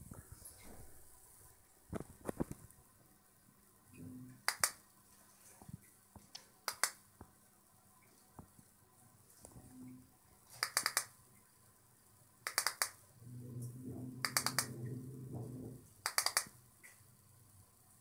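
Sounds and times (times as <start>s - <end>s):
faint low murmur: 13.2s - 16.0s.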